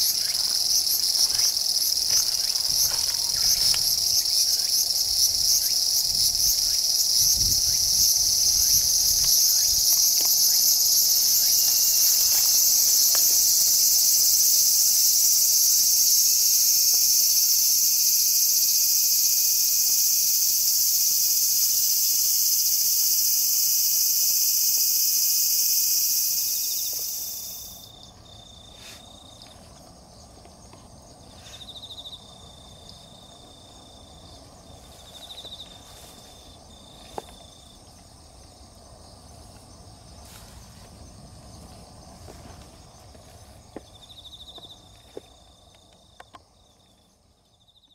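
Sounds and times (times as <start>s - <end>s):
faint thin insect trill: 0.0s - 47.9s
high-pitched insect chorus: 0.0s - 47.9s.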